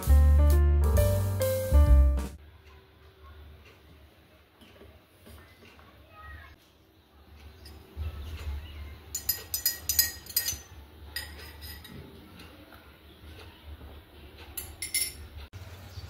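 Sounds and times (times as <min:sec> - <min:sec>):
spoon clinking against glass: 0:09.1 - 0:11.9, 0:14.6 - 0:15.3.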